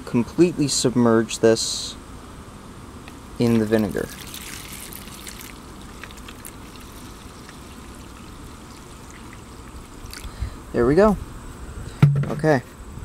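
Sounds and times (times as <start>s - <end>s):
liquid pouring into plastic tray: 3.5s - 10.3s.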